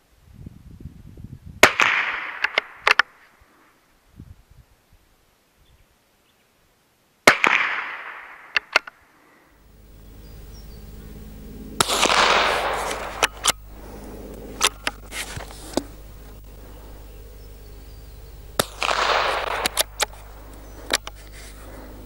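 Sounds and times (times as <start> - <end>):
rifle shot with echo: 1.6 - 3.1, 7.2 - 8.9, 11.7 - 15.1, 18.5 - 21.8
sharp clicks: 11.8 - 13.7, 14.3 - 16.6, 18.4 - 21.8.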